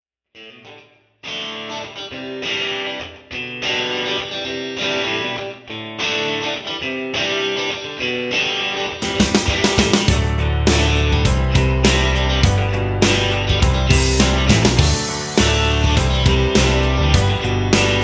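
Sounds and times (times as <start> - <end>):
strummed guitar chords: 0.5 - 18.0
sharp musical hits: 9.0 - 18.0.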